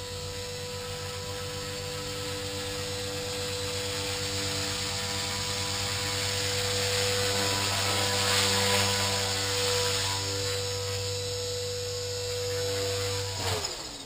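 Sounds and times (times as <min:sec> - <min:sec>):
rc helicopter motor whine: 0:00.0 - 0:14.0.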